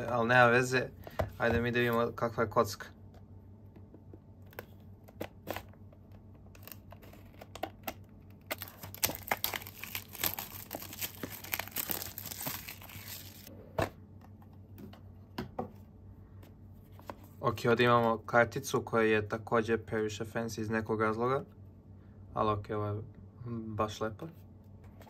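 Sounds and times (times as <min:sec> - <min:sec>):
plastic wrap crinkling: 0:08.4 - 0:13.5.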